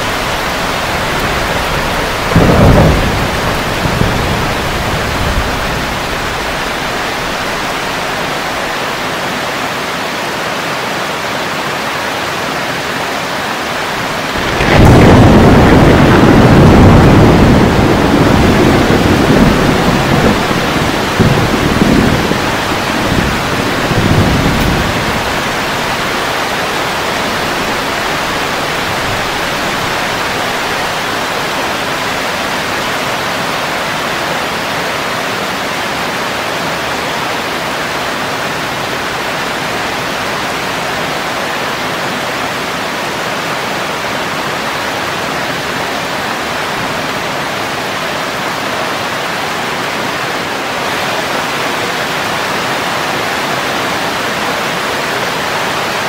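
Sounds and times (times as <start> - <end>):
low rumble of thunder: 0.0 - 9.0, 14.1 - 33.9
heavy rain on leaves: 0.0 - 56.0.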